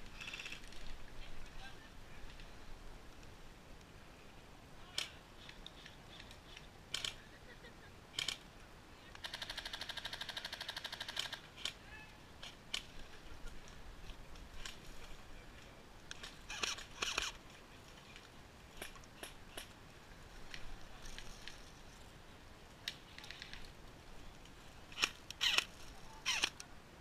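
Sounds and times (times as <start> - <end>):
sharp clicks: 5.0 - 7.2, 8.2 - 8.4, 16.1 - 17.4, 24.9 - 26.7.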